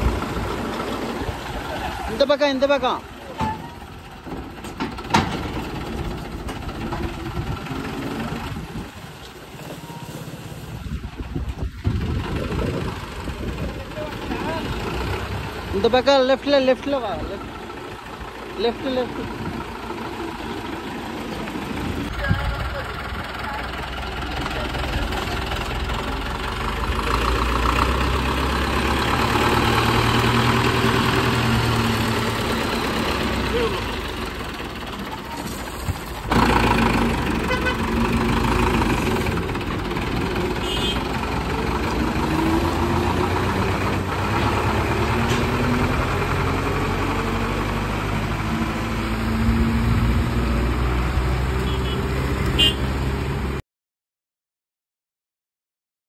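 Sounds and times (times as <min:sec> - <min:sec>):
tractor diesel engine idling: 0:00.0 - 0:49.1.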